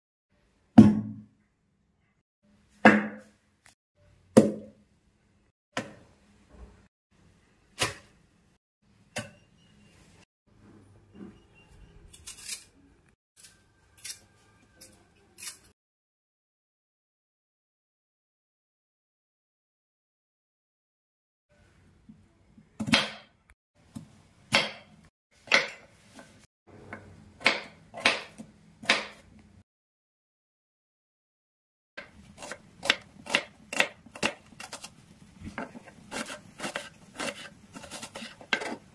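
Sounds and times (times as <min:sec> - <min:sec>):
knife cutting potato on board: 0:26.9 - 0:29.3, 0:32.0 - 0:38.9.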